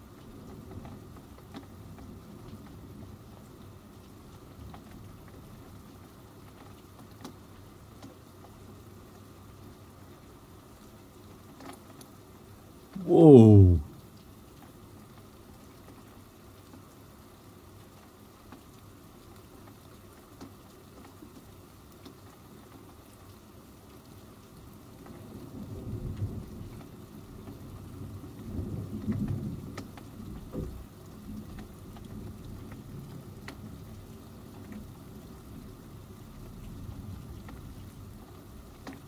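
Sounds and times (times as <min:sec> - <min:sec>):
rain hiss: 0:00.0 - 0:39.0
raindrop ticks: 0:06.4 - 0:08.6, 0:18.0 - 0:22.8, 0:26.1 - 0:35.7, 0:36.4 - 0:39.0.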